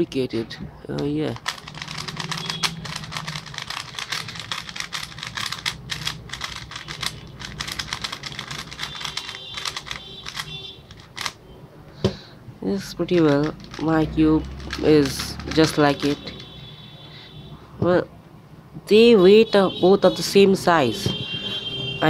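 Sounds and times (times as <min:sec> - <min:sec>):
speed cube layers clicking: 0:01.3 - 0:11.4, 0:13.0 - 0:16.4.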